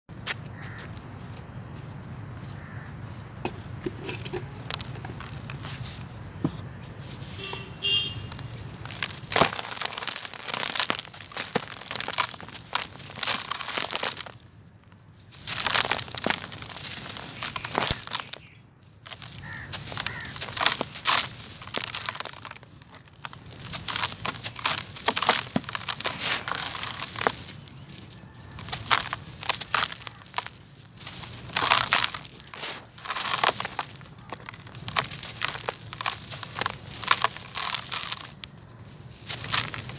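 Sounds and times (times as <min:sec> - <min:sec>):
hand crushing dry balls in plastic tub: 0:08.3 - 0:14.5, 0:15.3 - 0:39.9.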